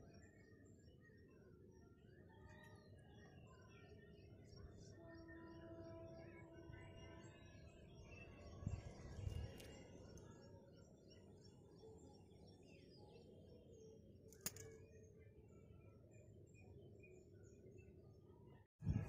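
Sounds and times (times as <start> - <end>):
sharp click: 14.3 - 14.8.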